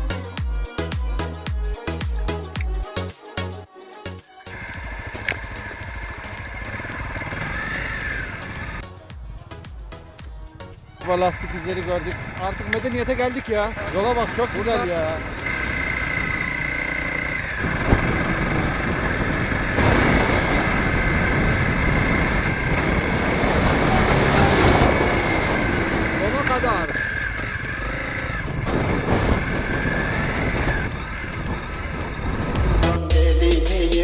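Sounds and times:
music with strong bass and beat: 0.0s - 4.1s, 28.4s - 34.0s
wind: 0.0s - 34.0s
dirt bike engine running: 4.5s - 33.2s
wind on microphone: 17.4s - 26.2s, 26.8s - 32.8s.

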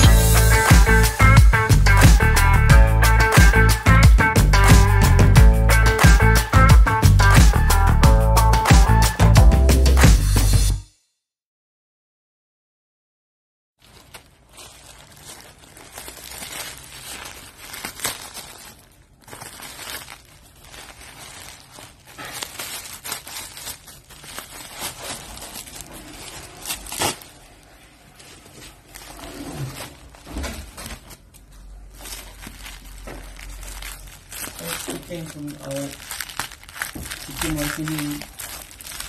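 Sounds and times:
plastic bag and bubble wrap crinkling: 0.0s - 7.6s, 13.8s - 39.0s
sharp crackles: 13.8s - 39.0s.

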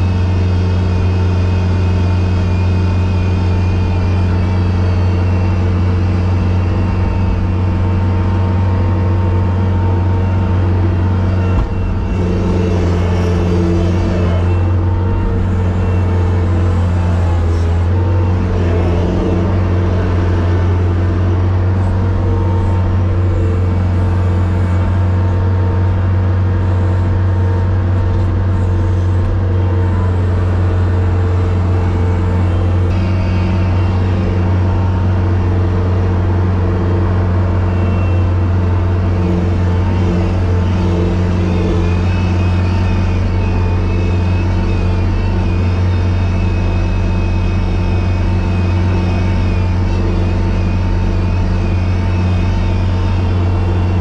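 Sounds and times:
machine engine droning: 0.0s - 54.0s.

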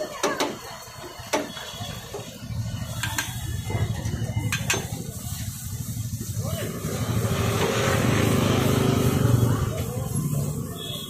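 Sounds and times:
ladle clinking against pot: 4.5s - 5.0s.

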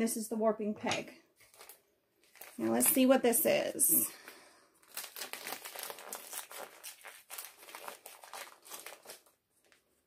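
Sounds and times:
plastic packaging crinkling: 1.4s - 3.1s, 4.8s - 10.0s.

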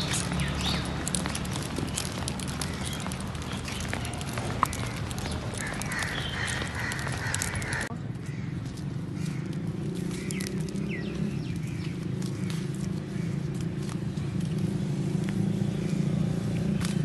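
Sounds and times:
footsteps on dry grass and leaves: 0.0s - 17.0s.

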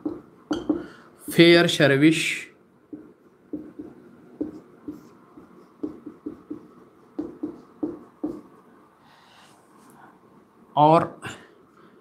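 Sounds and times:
marker writing on a whiteboard: 2.9s - 8.6s.

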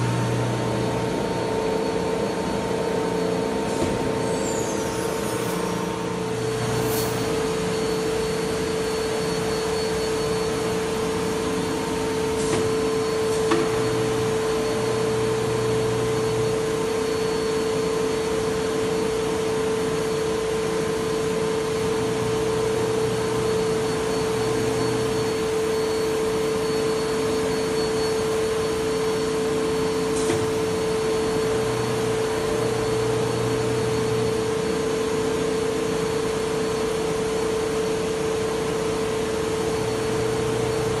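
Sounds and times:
router spindle whine: 0.0s - 12.3s.

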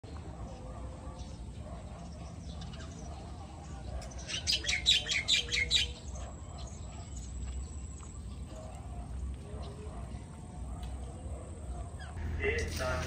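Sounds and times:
low outdoor rumble: 6.0s - 13.0s.

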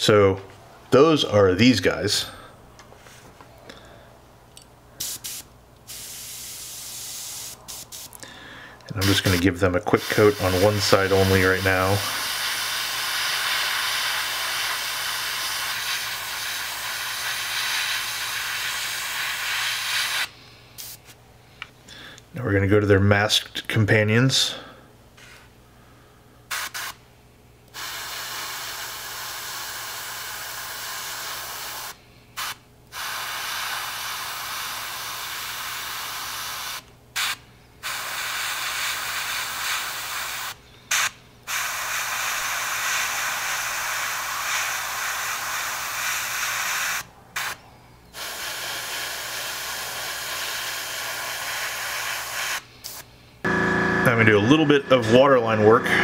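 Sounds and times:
airbrush spraying paint: 5.0s - 8.2s, 9.0s - 9.4s, 10.0s - 21.2s, 26.5s - 27.0s, 27.8s - 47.6s, 48.2s - 53.1s
short puff of air: 52.5s - 53.1s.

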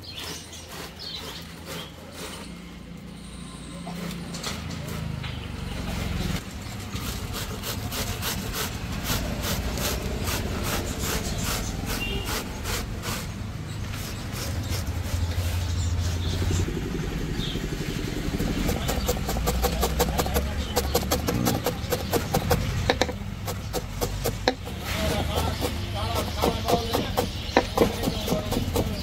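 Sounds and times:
cabbage grating on metal grater: 0.0s - 2.7s, 6.7s - 16.2s, 18.4s - 29.0s
knife chopping on wooden board: 18.5s - 29.0s.

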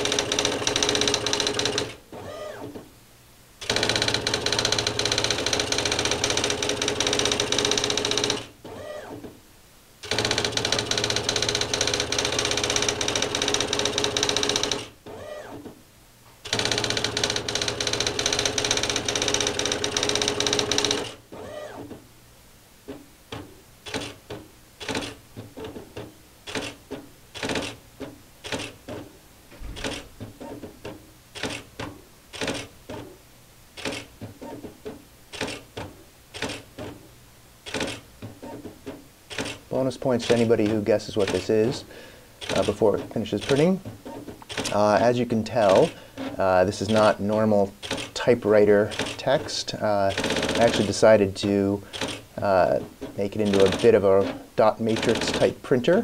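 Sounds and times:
typewriter carriage whir: 0.0s - 2.6s, 3.6s - 9.0s, 10.0s - 15.5s, 16.4s - 21.8s, 24.8s - 25.2s, 27.4s - 27.8s, 29.6s - 30.6s, 31.4s - 32.7s, 35.3s - 35.7s, 37.7s - 38.7s, 40.2s - 41.8s, 42.4s - 47.2s, 47.8s - 49.4s, 50.0s - 51.2s, 51.9s - 55.6s
typewriter character strikes: 50.1s - 51.0s, 53.4s - 55.5s.

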